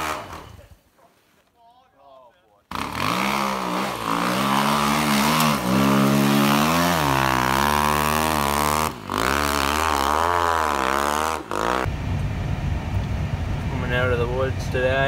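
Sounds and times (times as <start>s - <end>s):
snow bike engine revving: 0.0s - 0.6s, 2.7s - 11.9s.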